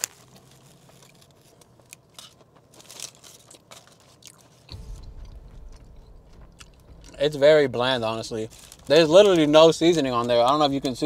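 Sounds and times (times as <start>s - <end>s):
person chewing: 0.0s - 7.2s
low rumble: 4.7s - 11.0s.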